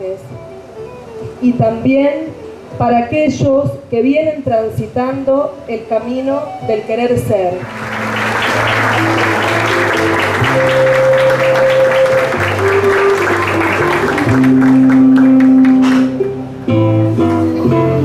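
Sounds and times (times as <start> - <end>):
instrumental music with guitar: 0.0 - 4.4, 6.4 - 18.0
audience applauding: 7.6 - 16.4.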